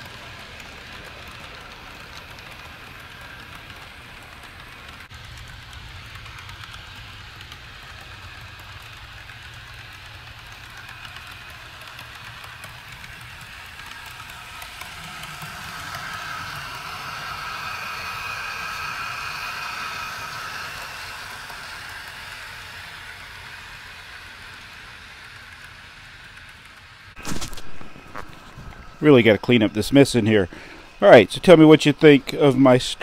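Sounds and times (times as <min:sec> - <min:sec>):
whining tone: 0:00.0 - 0:24.7
wheels clicking: 0:00.0 - 0:27.2
model train rolling rumble: 0:00.0 - 0:33.0.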